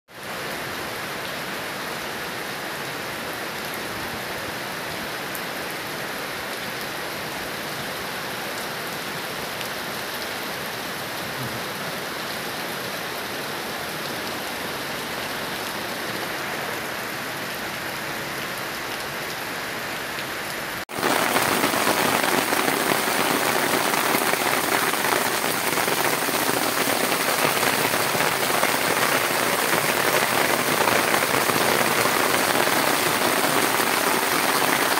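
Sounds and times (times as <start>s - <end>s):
heavy rain on pavement: 0.1s - 34.9s.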